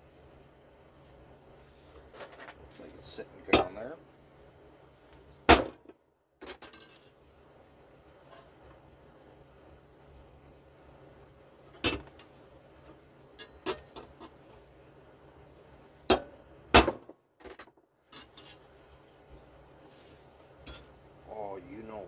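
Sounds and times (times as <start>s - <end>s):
hammer striking steel punch: 5.5s - 5.8s.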